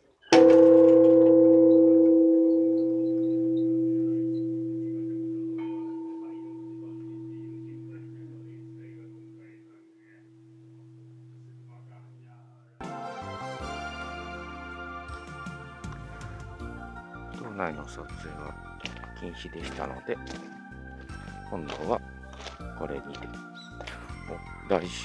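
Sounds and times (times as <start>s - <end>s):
temple bell ringing: 0.3s - 9.7s.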